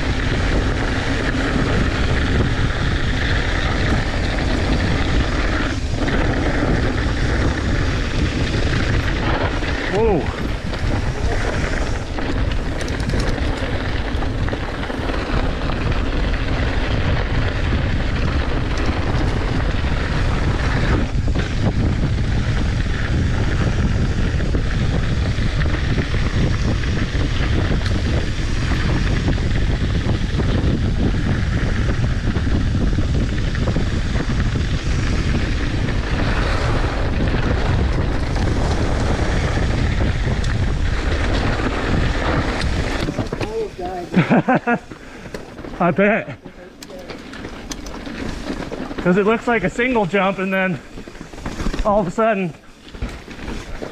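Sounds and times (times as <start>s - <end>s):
bike tyres rolling on dirt: 0.0s - 53.9s
wind buffeting microphone: 0.0s - 53.9s.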